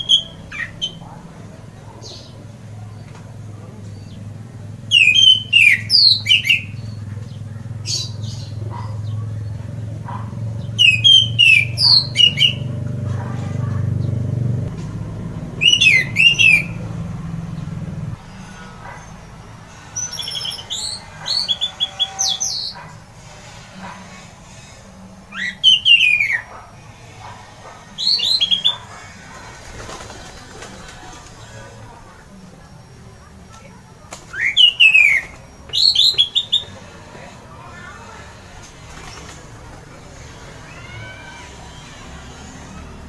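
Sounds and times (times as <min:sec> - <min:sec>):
thrush singing whistled phrases: 0:00.0 - 0:01.0, 0:04.9 - 0:07.0, 0:10.7 - 0:12.7, 0:15.5 - 0:17.0, 0:19.9 - 0:22.8, 0:25.3 - 0:26.5, 0:28.0 - 0:29.0, 0:34.3 - 0:36.8
low hum: 0:12.6 - 0:20.6.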